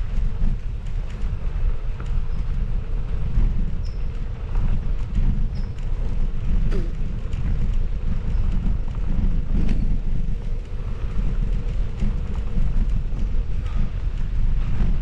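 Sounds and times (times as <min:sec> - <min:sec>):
small clicks and rattles: 0:00.0 - 0:15.0
wind rumbling on microphone: 0:00.0 - 0:15.0.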